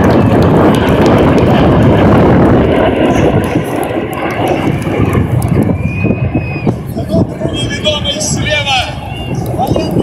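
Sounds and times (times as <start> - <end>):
jet engines roaring past: 0.0 - 10.0.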